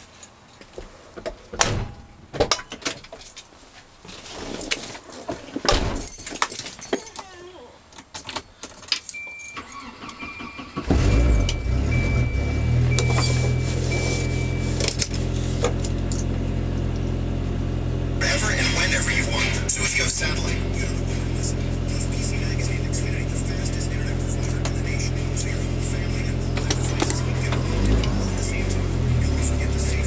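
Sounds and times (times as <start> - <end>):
keys jangling: 2.9 - 3.5, 6.0 - 10.0
high warning chime beeping: 9.1 - 15.4
car engine starting and idling: 9.5 - 30.0.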